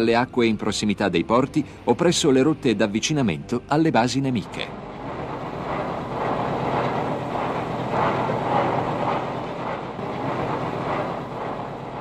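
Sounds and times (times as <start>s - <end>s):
rushing rumbling noise: 4.1s - 12.0s.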